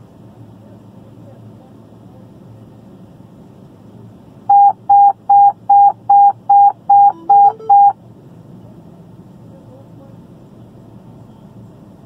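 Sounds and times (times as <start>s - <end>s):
short alert beeps: 4.5s - 8.0s.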